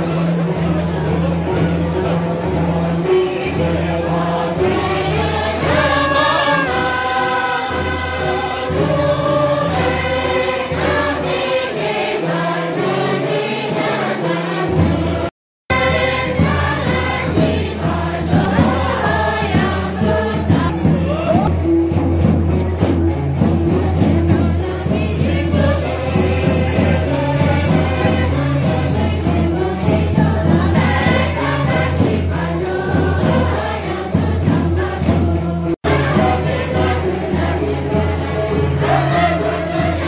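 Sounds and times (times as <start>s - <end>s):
group of people singing: 0.0s - 40.0s
instrumental backing with bass: 0.0s - 40.0s.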